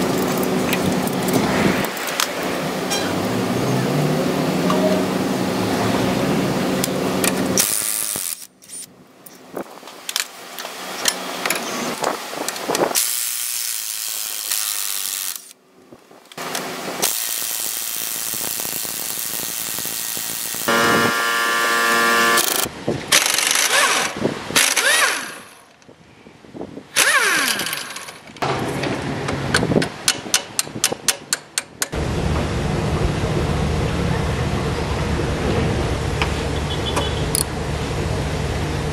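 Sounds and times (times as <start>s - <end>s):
impact wrench hammering: 20.6s - 23.8s.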